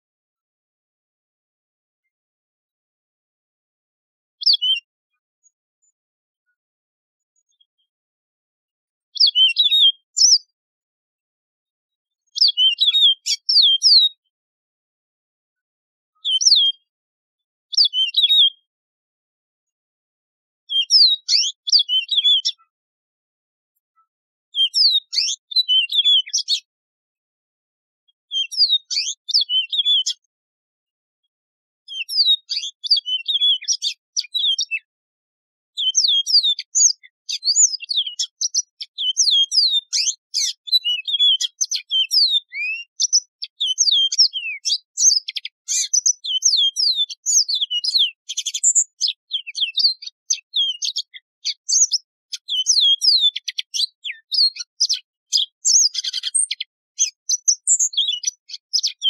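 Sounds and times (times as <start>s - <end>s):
bird singing high warbling song: 4.4s - 6.0s, 7.4s - 7.9s, 9.2s - 10.6s, 12.2s - 14.3s, 16.1s - 16.9s, 17.7s - 18.7s, 20.7s - 22.8s, 24.0s - 26.7s, 28.3s - 30.3s, 31.9s - 34.9s, 35.7s - 59.0s.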